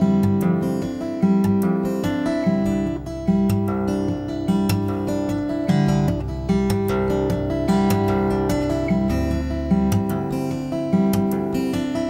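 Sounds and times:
strummed acoustic guitar chords: 0:00.0 - 0:12.0.

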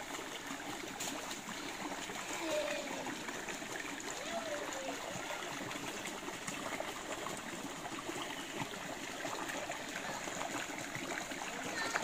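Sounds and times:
water trickling over stones: 0:00.0 - 0:12.0.

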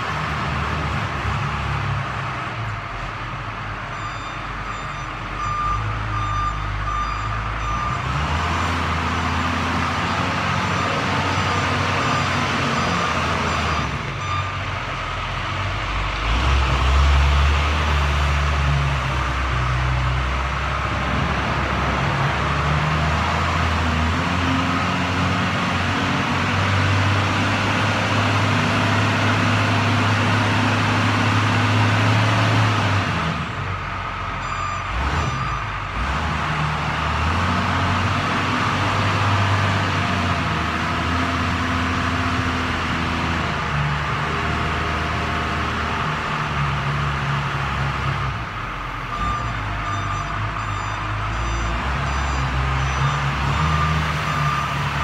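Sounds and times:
diesel engine working: 0:00.0 - 0:55.0
reversing alarm beeps: 0:03.9 - 0:14.6, 0:34.4 - 0:35.8, 0:49.1 - 0:55.0.

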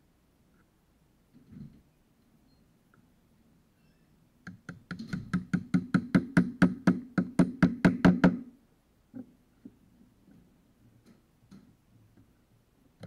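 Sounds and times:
rapid knocking on screwdriver: 0:04.5 - 0:08.4.

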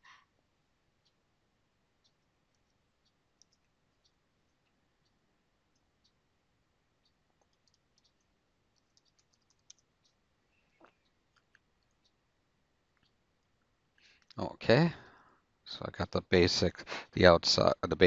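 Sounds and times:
computer mouse clicks: 0:02.0 - 0:04.8, 0:07.0 - 0:10.2
keyboard keystrokes: 0:08.8 - 0:09.8.

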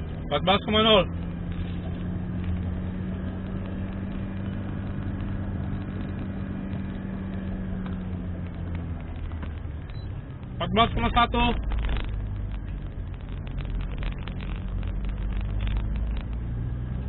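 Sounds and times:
car engine and tyre drone: 0:00.0 - 0:17.0.

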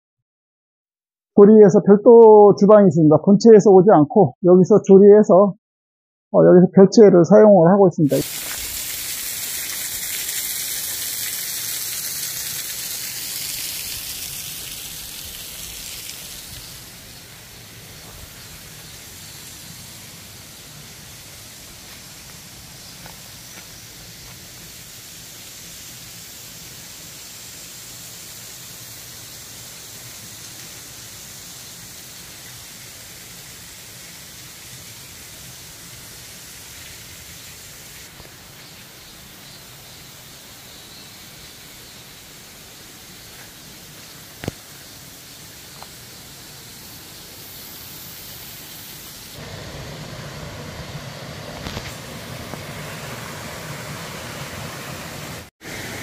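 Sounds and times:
small waterfall splashing: 0:08.2 - 0:56.0.

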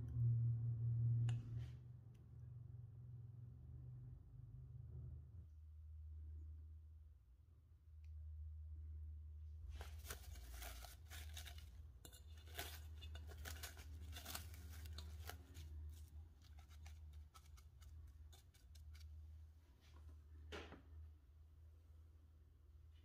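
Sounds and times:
cling film crinkling: 0:09.7 - 0:19.1.

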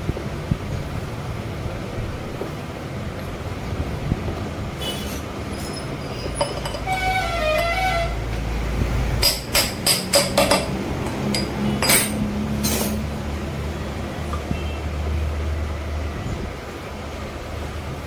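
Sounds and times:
sharp metal taps: 0:09.2 - 0:12.9.

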